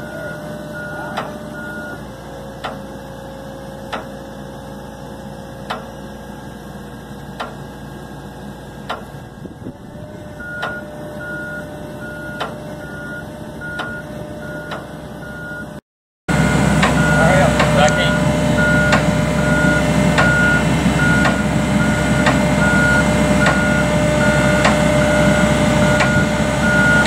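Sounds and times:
backup alarm beeping: 0.0 - 2.0, 10.4 - 27.0
excavator diesel engine running: 0.0 - 27.0.

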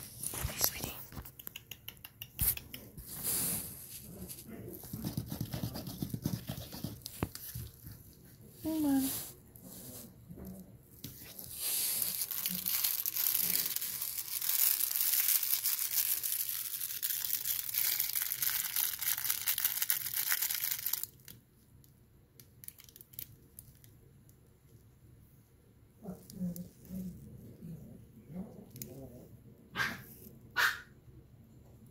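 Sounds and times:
crinkly material rustling: 3.0 - 21.4.

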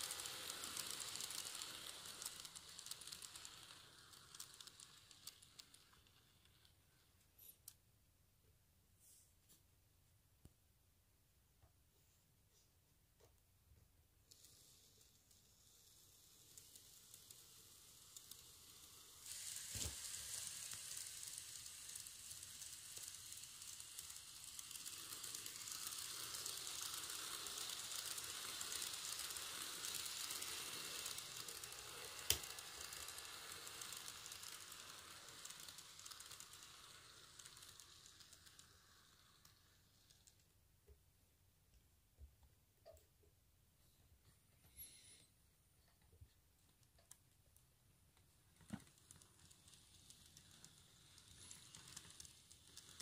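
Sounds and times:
model train rattling: 0.0 - 7.8, 14.2 - 40.8, 46.7 - 53.0.

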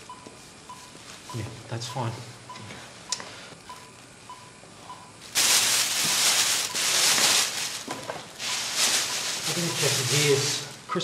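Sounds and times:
patient monitor beeps: 0.0 - 5.2
foil blanket crinkling: 5.3 - 10.8.

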